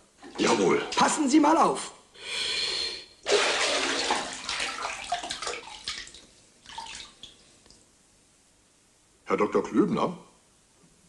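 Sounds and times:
splash into bathwater: 0:03.2 - 0:07.4
water sloshing and gurgling: 0:03.3 - 0:07.8.

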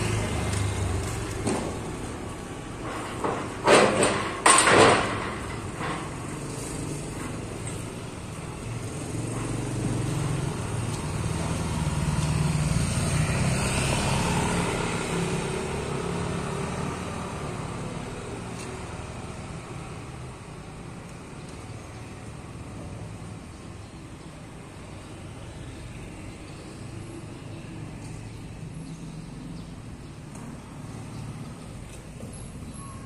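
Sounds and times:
steel gate clanking and rattling: 0:02.7 - 0:08.0.

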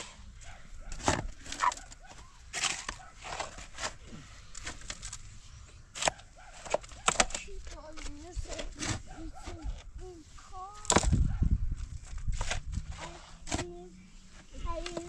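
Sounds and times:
shovels scraping stony soil: 0:00.0 - 0:15.0
rocks clattering into metal wheelbarrow: 0:02.5 - 0:04.0.

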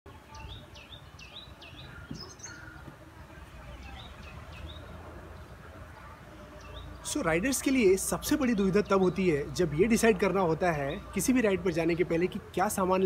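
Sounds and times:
small bird chirping: 0:00.1 - 0:03.0.

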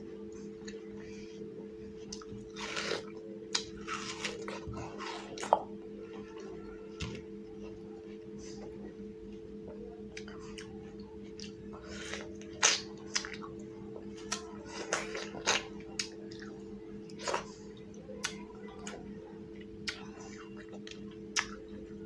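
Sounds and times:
steady hum: 0:00.0 - 0:22.0
wet chewing and smacks: 0:10.1 - 0:19.0, 0:19.6 - 0:21.6.

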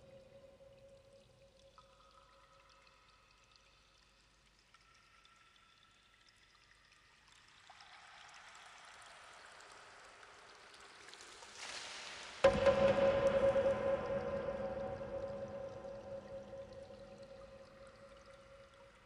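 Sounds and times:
water pouring and trickling: 0:00.0 - 0:19.0.

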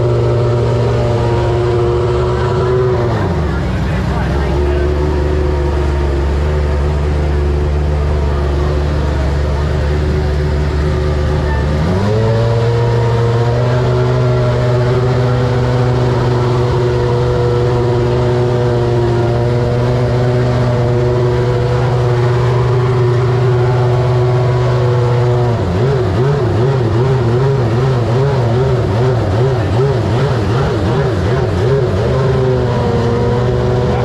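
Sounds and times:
racing engine idling: 0:00.0 - 0:34.0.

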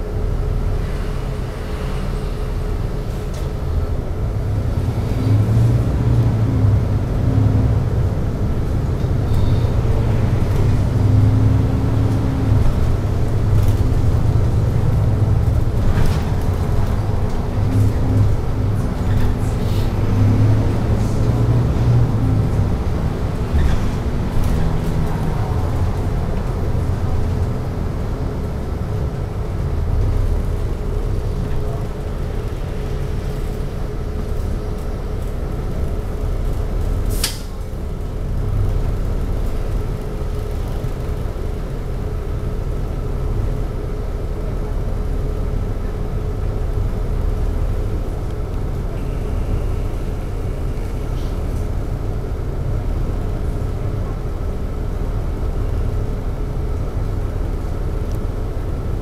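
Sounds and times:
bus engine: 0:00.0 - 0:59.0
air brake hiss: 0:37.1 - 0:37.6.

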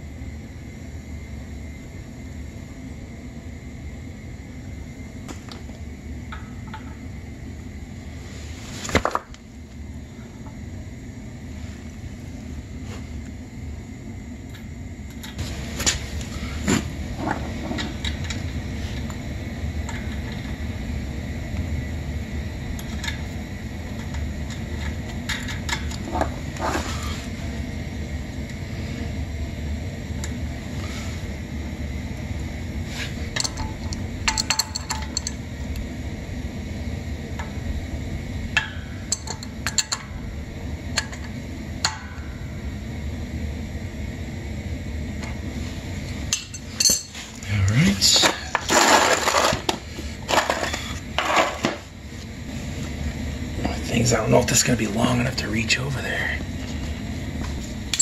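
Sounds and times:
steady low hum: 0:00.0 - 0:58.0
metal fittings clinking: 0:46.3 - 0:47.2.

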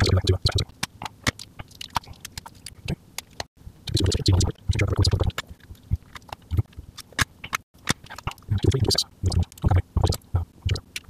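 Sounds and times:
circuit board handling clicks and rustles: 0:00.0 - 0:04.0, 0:05.2 - 0:08.5.

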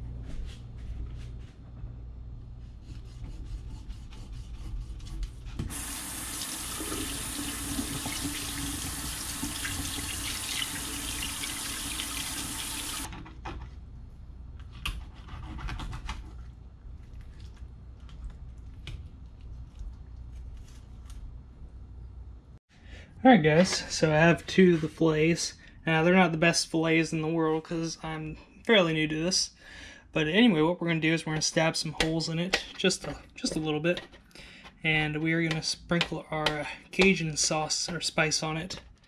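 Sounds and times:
faucet running into steel sink: 0:05.7 - 0:13.1.

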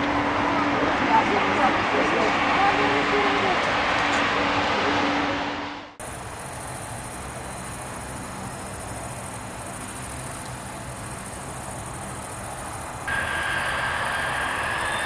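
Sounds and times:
aircraft noise: 0:00.0 - 0:15.0
faint low airport rumble: 0:00.0 - 0:15.0
insects trilling: 0:06.0 - 0:15.0.

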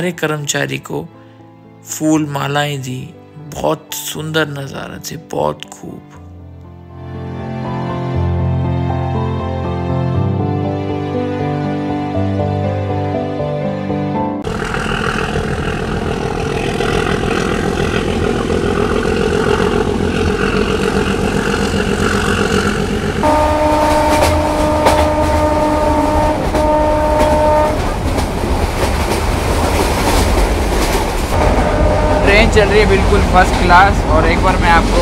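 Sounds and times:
train rumble and wheel clatter: 0:14.5 - 0:35.0
locomotive horn blasts: 0:23.0 - 0:28.2, 0:31.4 - 0:33.8.

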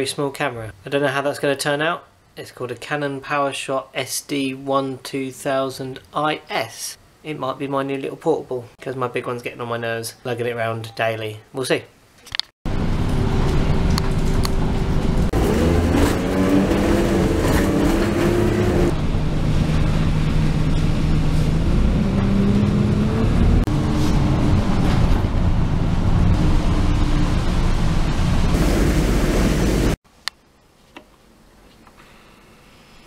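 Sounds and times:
bus engine and transmission whine: 0:12.7 - 0:30.0.

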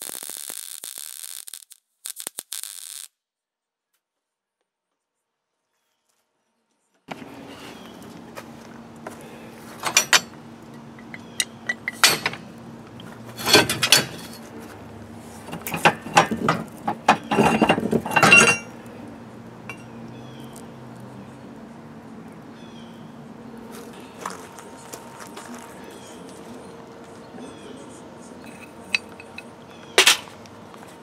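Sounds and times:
scrap steel clanking: 0:09.7 - 0:14.6, 0:15.2 - 0:18.8.

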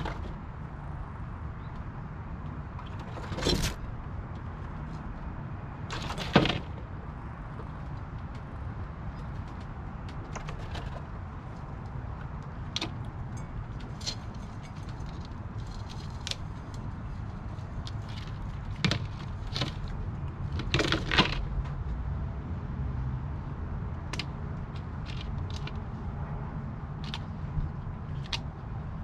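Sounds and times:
nuts and claws scraping plastic: 0:02.8 - 0:03.9, 0:05.9 - 0:06.8, 0:13.8 - 0:21.5.

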